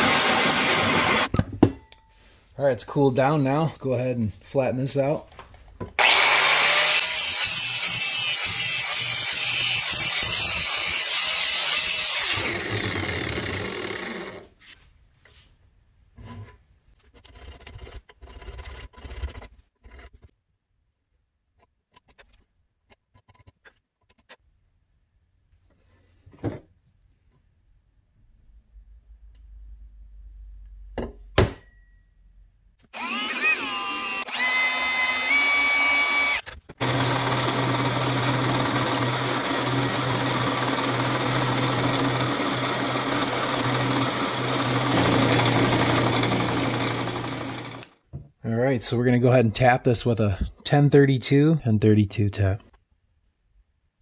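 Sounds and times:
rotary power tool grinding: 0.0s - 1.3s, 6.0s - 14.5s, 32.9s - 47.9s.

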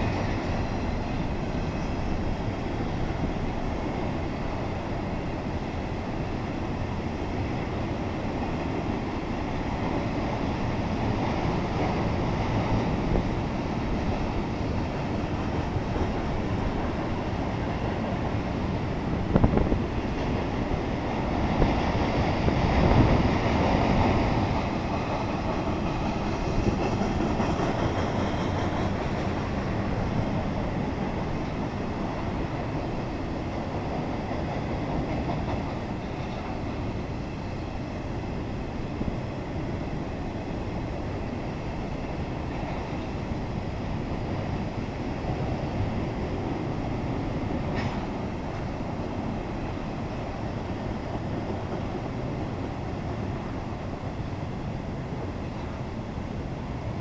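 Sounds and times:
train wheels rolling on rail: 0.0s - 57.0s.

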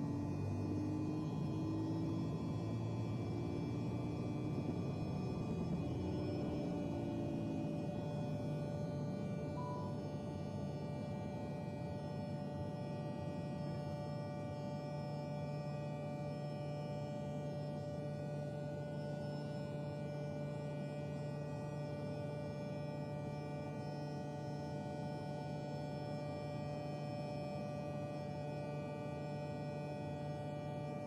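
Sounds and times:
low drone with held tones: 0.0s - 21.2s.

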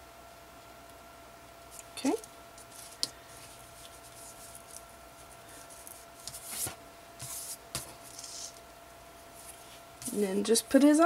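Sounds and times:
ribbon rustling on paper: 1.7s - 8.6s.

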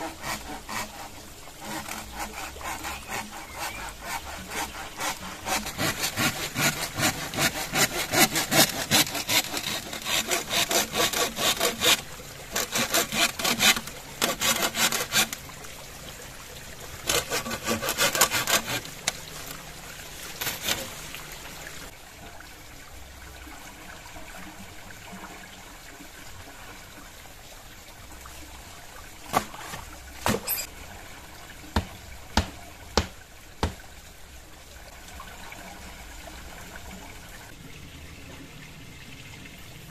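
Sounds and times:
hand saw cutting bamboo: 0.0s - 15.4s, 17.0s - 19.6s, 20.3s - 21.0s, 29.3s - 30.7s
water trickling: 0.0s - 39.9s
sharp knocks: 31.8s - 33.8s.

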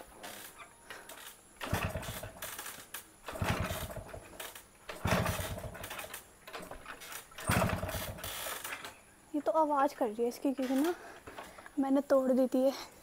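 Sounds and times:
motorcycle engine kick-start turning over: 0.0s - 9.0s.

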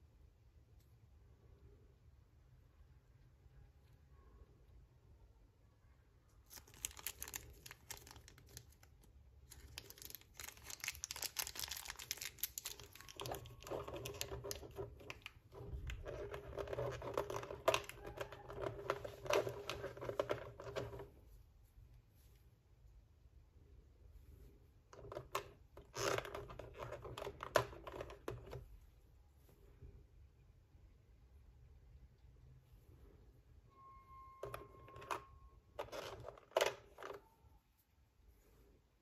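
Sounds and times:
plastic blister tray crinkling: 6.5s - 21.1s.

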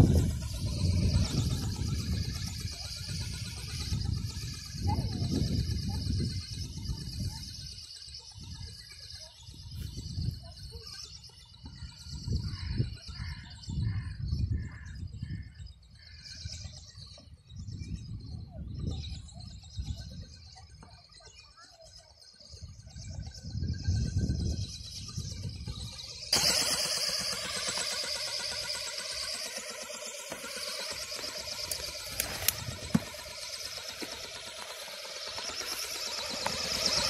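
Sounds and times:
wind buffeting microphone: 0.0s - 7.8s, 11.6s - 15.8s, 22.5s - 26.6s, 30.4s - 37.0s
birds chirping: 0.0s - 37.0s.

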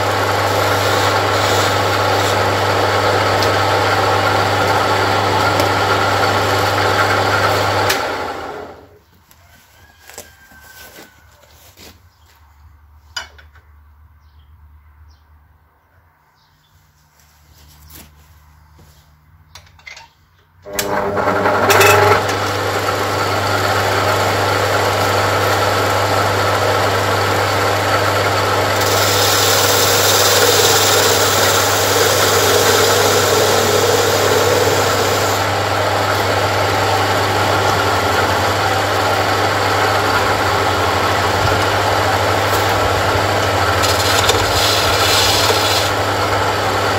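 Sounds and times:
file scraping spinning wood: 0.0s - 8.7s, 20.7s - 46.9s
lathe motor humming: 0.0s - 8.8s, 20.7s - 46.9s.

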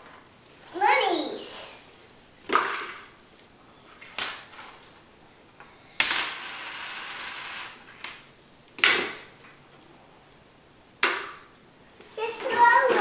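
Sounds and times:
coins clinking on wooden floor: 4.2s - 4.7s, 6.0s - 7.8s
coin rattling on boards: 6.0s - 7.8s.

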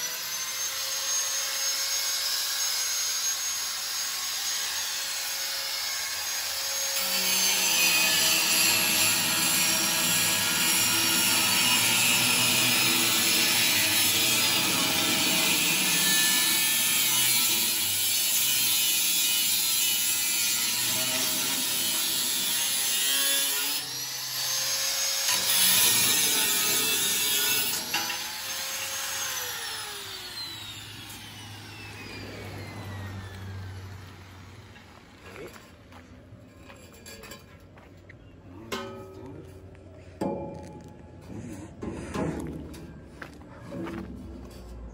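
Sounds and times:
angle grinder cutting steel pipe: 0.0s - 35.6s.

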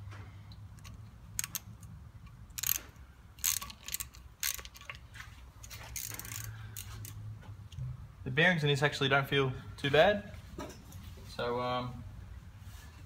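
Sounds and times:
socket ratchet clicking: 0.7s - 5.0s, 5.9s - 7.2s.

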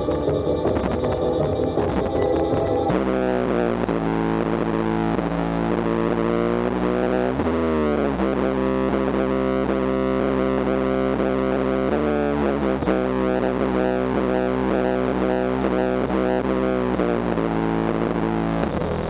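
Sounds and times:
rock music with distorted guitar: 0.0s - 4.7s.

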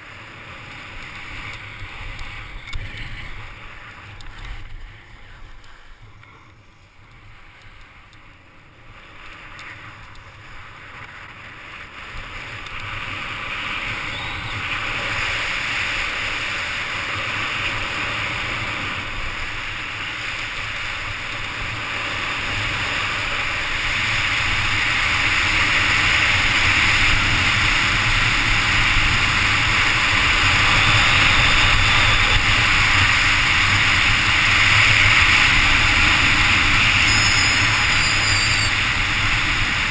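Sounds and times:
skis hissing over snow: 9.1s - 39.9s
wind rushing on microphone: 9.1s - 39.9s.

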